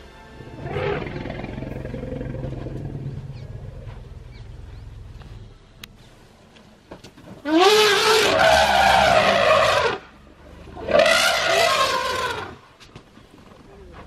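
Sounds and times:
elephant trumpeting: 0.6s - 3.4s, 7.4s - 12.6s.

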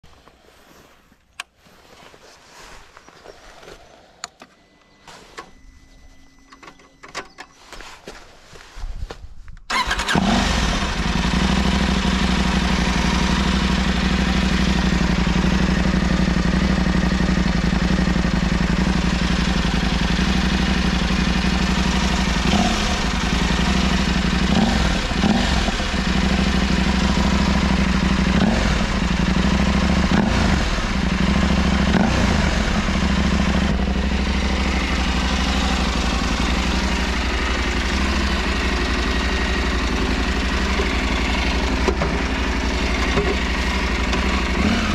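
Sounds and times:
motorcycle engine idling: 9.7s - 44.9s.

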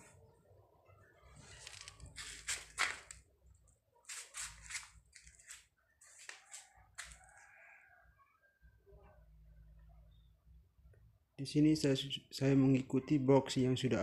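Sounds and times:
dry scraping and rustling strokes: 1.3s - 3.2s, 4.0s - 7.2s.

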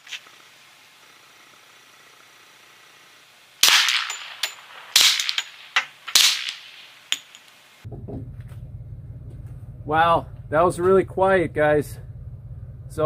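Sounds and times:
suppressed pistol shots: 3.6s - 6.9s
metallic clinks: 7.1s - 7.6s.

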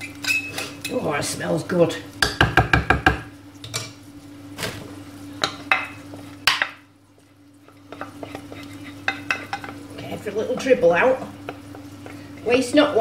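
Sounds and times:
steady low hum: 0.5s - 13.0s.

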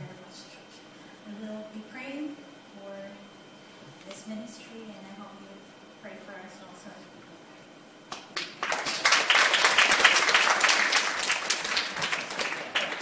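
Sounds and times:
congregation applauding: 8.1s - 13.0s.

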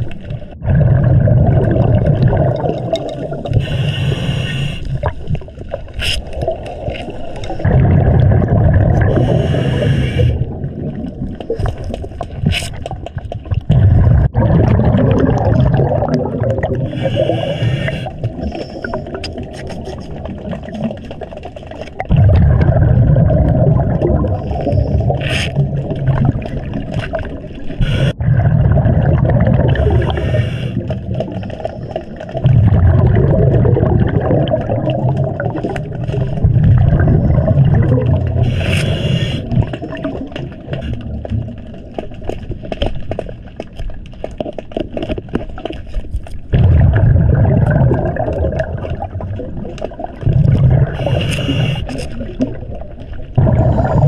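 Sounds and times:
exhaled bubbles rushing: 0.0s - 42.7s, 46.4s - 54.0s
small clicks and scrapes: 2.9s - 7.6s, 11.4s - 13.7s, 17.0s - 22.1s, 24.6s - 25.6s, 38.4s - 46.5s, 50.9s - 53.2s
diver breathing through regulator: 3.5s - 5.2s, 9.0s - 10.6s, 16.8s - 19.2s, 24.2s - 25.6s, 27.8s - 28.2s, 29.8s - 32.2s, 38.3s - 39.8s, 50.8s - 52.2s.

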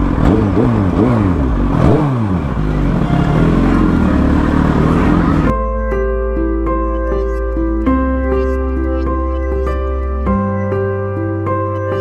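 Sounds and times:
motorcycle engine revving: 0.0s - 5.5s.

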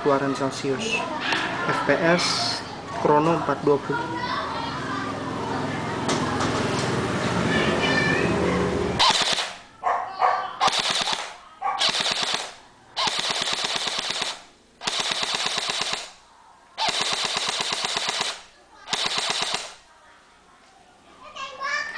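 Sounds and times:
airsoft rifle firing bursts: 9.0s - 9.7s, 10.6s - 16.2s, 16.8s - 19.8s.

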